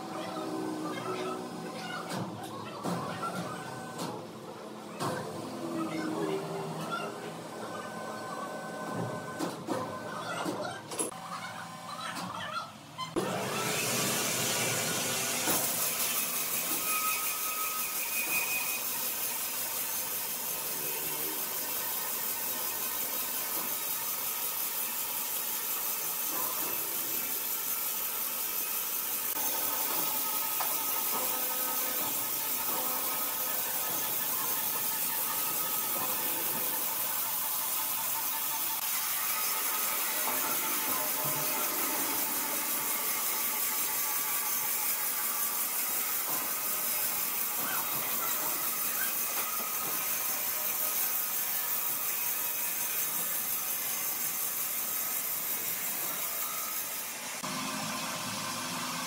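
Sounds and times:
sawmill machinery hissing: 13.2s - 59.0s.

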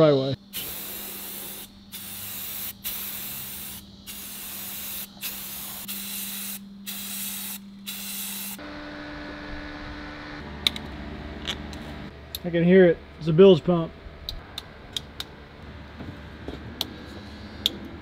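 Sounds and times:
spray can hissing: 0.5s - 8.6s
low hum: 8.6s - 18.0s.

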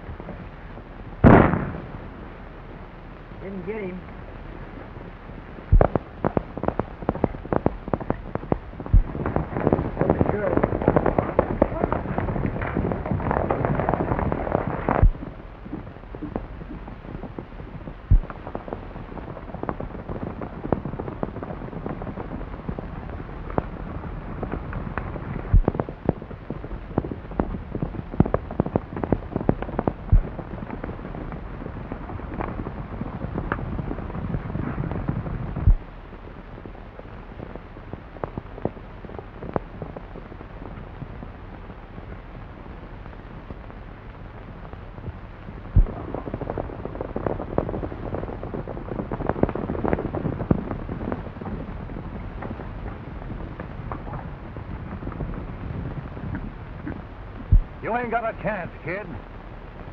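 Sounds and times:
horses galloping through water: 3.8s - 36.7s.

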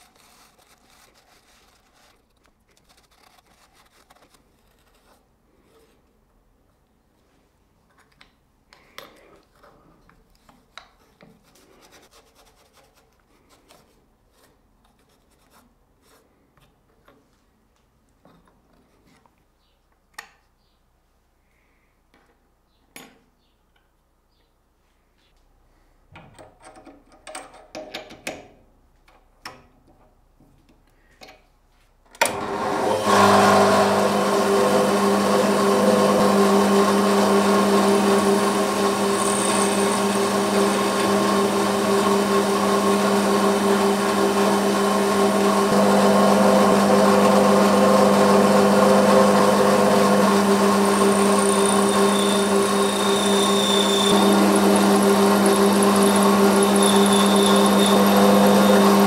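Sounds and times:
metal lathe running: 32.3s - 59.0s.

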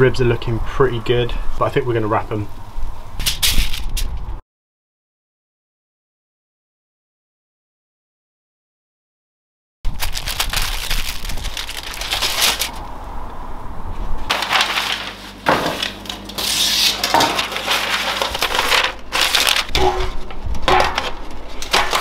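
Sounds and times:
aluminium foil crinkling: 9.9s - 12.8s, 14.3s - 22.0s
paper rustling and sliding: 9.9s - 12.8s, 14.3s - 22.0s.

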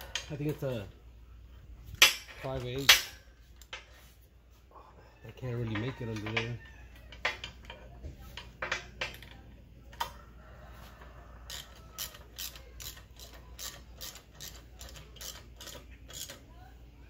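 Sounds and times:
ratchet wrench clicking: 11.5s - 16.5s.

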